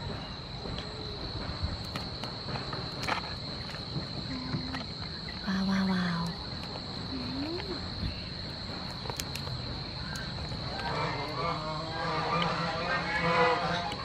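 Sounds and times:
insects chirring: 0:00.0 - 0:14.0
low voice-like hum: 0:07.0 - 0:08.2
shells cracking: 0:08.7 - 0:11.0.

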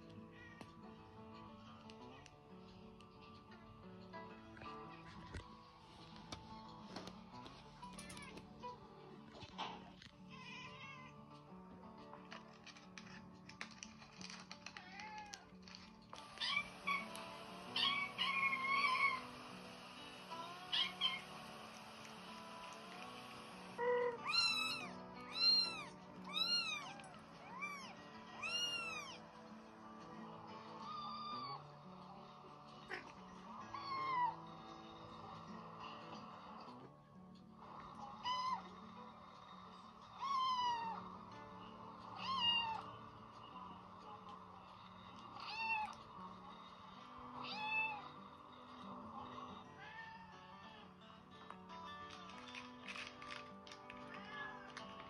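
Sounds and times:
soft background music: 0:00.0 - 0:55.0
kitten meowing: 0:16.4 - 0:17.1, 0:17.8 - 0:19.2, 0:20.7 - 0:21.2, 0:23.8 - 0:29.2, 0:42.2 - 0:42.8.

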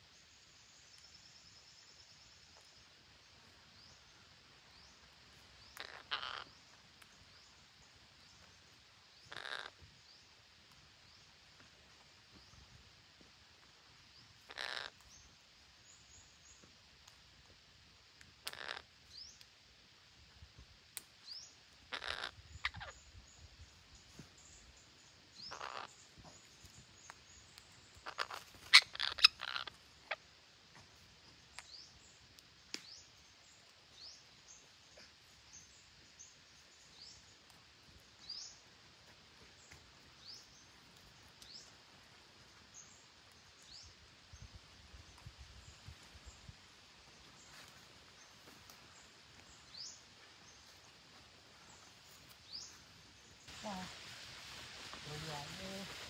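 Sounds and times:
parakeets squawking: 0:05.8 - 0:06.5, 0:09.3 - 0:09.7, 0:14.5 - 0:15.0, 0:18.4 - 0:18.8, 0:21.9 - 0:22.9, 0:25.4 - 0:25.9, 0:28.0 - 0:30.2.

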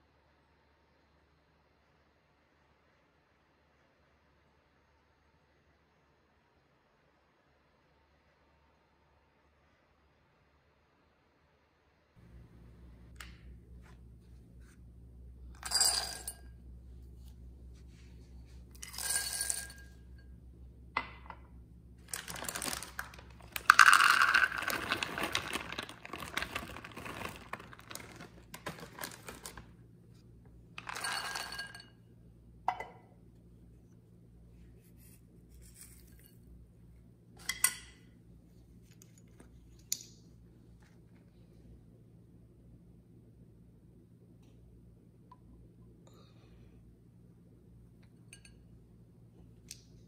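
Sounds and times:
nuts clattering into glass bowl: 0:15.6 - 0:16.4, 0:18.8 - 0:20.0, 0:22.1 - 0:29.5, 0:30.8 - 0:32.0.

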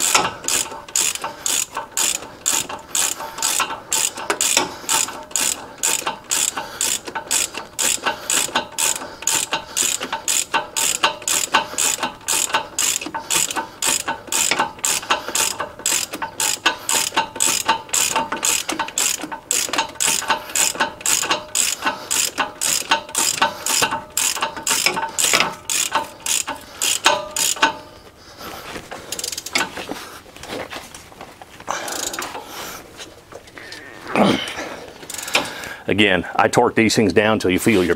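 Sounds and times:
hand ratchet clicking: 0:00.0 - 0:29.9, 0:31.7 - 0:32.6, 0:35.0 - 0:35.8
quiet handling sounds: 0:23.2 - 0:34.1.

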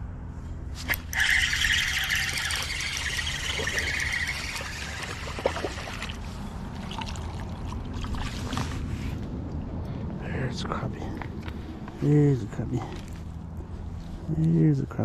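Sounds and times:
fish splashing at water surface: 0:00.9 - 0:08.6.

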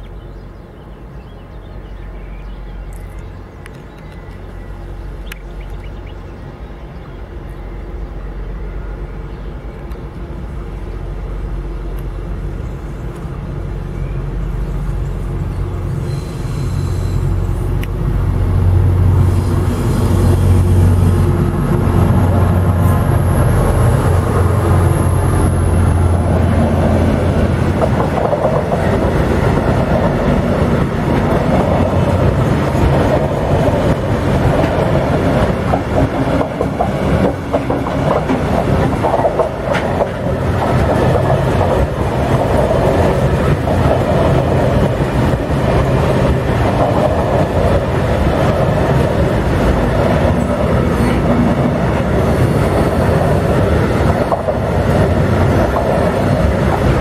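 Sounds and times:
train wheels rumbling on rails: 0:00.0 - 0:57.0
wheels clacking over rail joints: 0:19.0 - 0:57.0.

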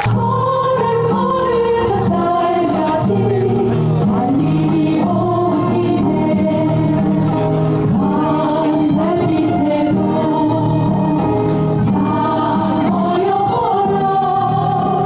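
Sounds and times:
choir singing in harmony: 0:00.0 - 0:15.0.

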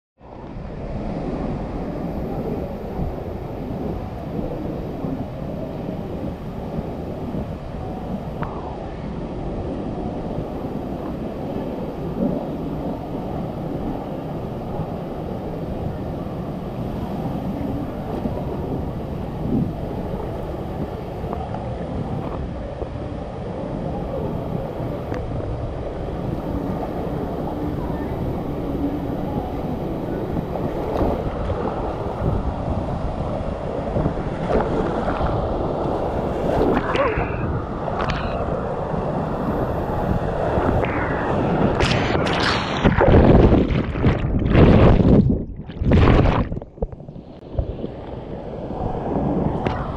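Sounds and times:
water splashes: 0:33.9 - 0:48.2
water rushing down a slide: 0:40.0 - 0:46.8.

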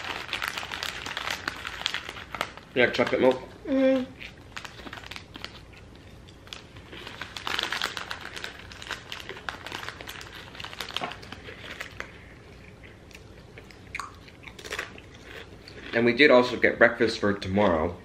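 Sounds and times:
foil snack bag crinkling: 0:00.0 - 0:03.4, 0:04.2 - 0:12.6.

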